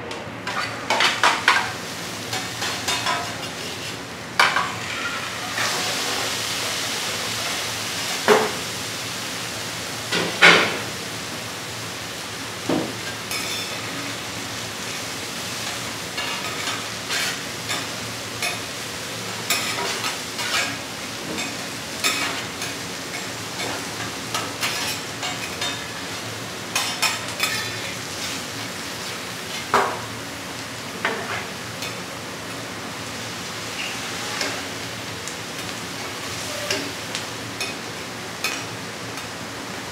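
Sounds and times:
food sizzling on griddle: 0:00.5 - 0:39.9
metal spatulas scraping griddle: 0:16.2 - 0:17.8, 0:19.5 - 0:20.8.

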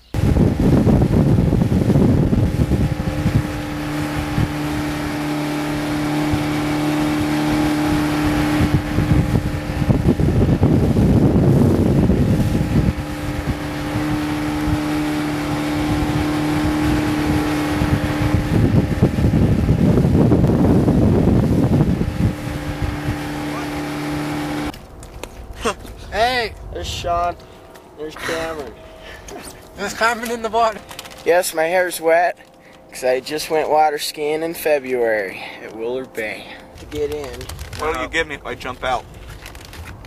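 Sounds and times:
wind buffeting microphone: 0:00.0 - 0:33.0, 0:35.7 - 0:40.0
water rushing: 0:00.0 - 0:39.7
boat engine running: 0:00.0 - 0:40.0.

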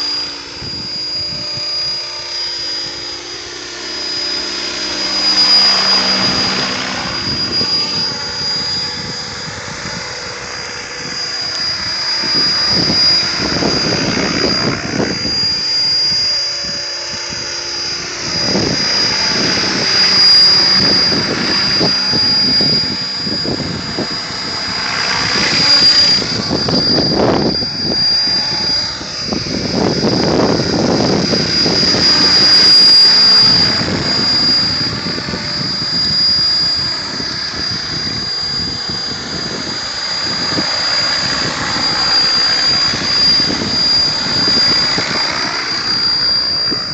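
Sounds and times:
rc helicopter whine and rotors: 0:00.0 - 0:46.9.

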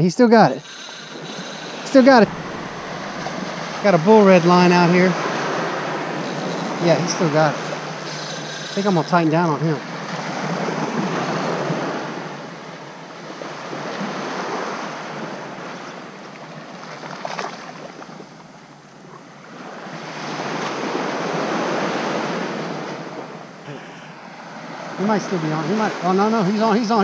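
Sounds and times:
surf breaking on sand: 0:00.6 - 0:12.8.

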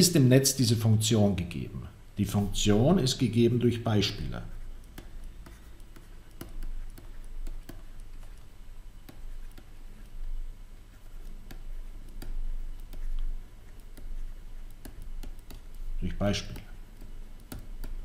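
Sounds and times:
stylus tapping on tablet screen: 0:04.6 - 0:18.0.

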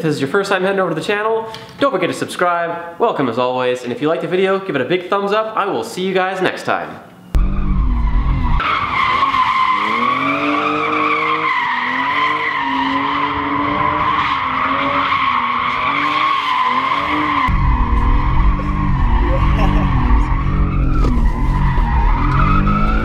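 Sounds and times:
car engine revving: 0:07.4 - 0:23.0.

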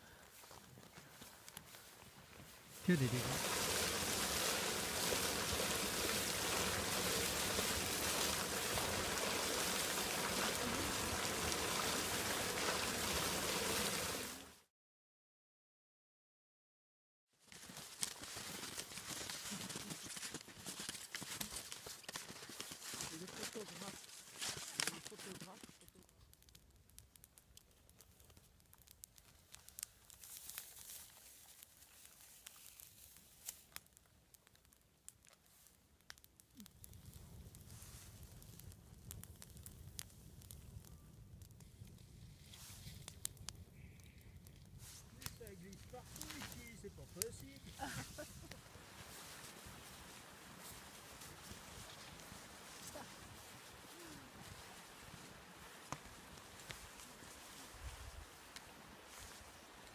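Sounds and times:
campfire crackling: 0:00.0 - 0:14.6, 0:17.4 - 0:59.9
stream flowing under ice: 0:02.8 - 0:14.7, 0:17.5 - 0:26.1, 0:44.6 - 0:59.9.

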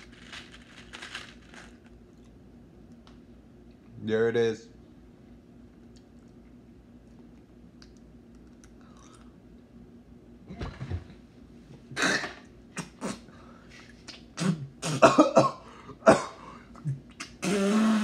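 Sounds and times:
man coughing and gagging: 0:12.0 - 0:13.2, 0:14.4 - 0:17.7
wet mouth clicks: 0:13.9 - 0:14.3.

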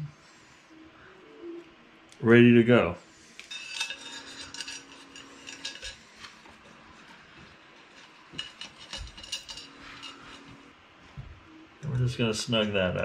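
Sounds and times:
small metal hardware clinking: 0:03.4 - 0:06.0, 0:08.0 - 0:10.6.

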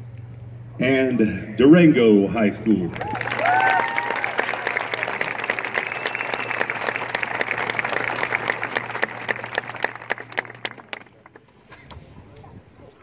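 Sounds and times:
crowd applauding: 0:02.9 - 0:11.5.

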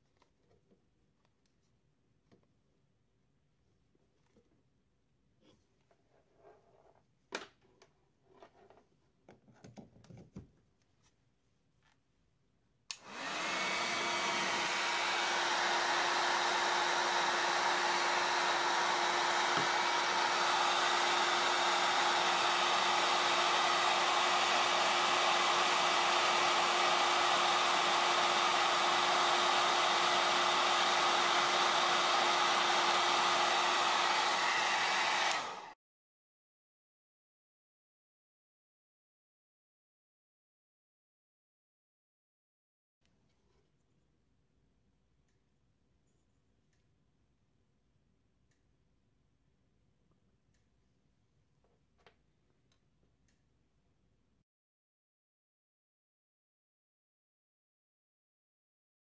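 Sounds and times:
hair dryer blowing: 0:12.9 - 0:35.8.

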